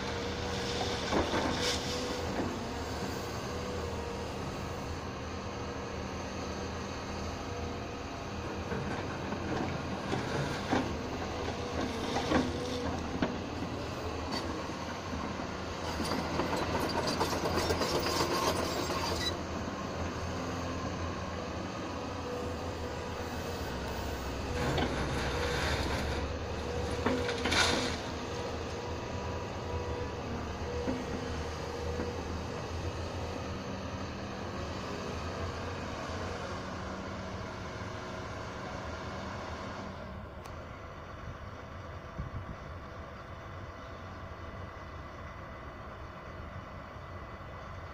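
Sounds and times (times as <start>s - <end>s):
diesel engine running: 0.0s - 47.9s
bucket scraping through gravel: 24.5s - 28.3s.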